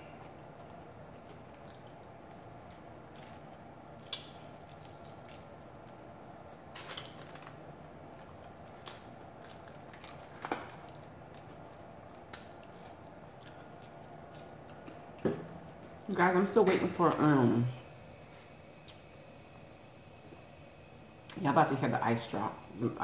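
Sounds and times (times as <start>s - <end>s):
low room hum: 0.0s - 23.0s
crunching fried chicken: 0.2s - 15.1s.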